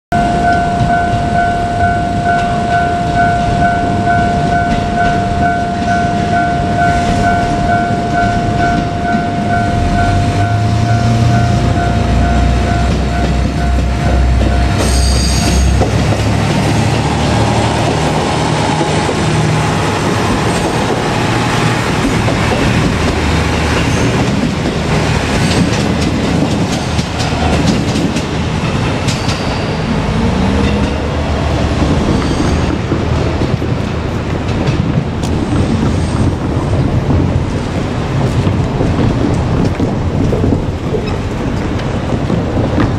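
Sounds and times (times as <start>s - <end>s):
level crossing bell ringing: 0.1s - 16.0s
diesel railcar engine running: 0.1s - 42.9s
train horn blast: 0.2s - 16.4s
train wheels clattering: 2.4s - 42.9s.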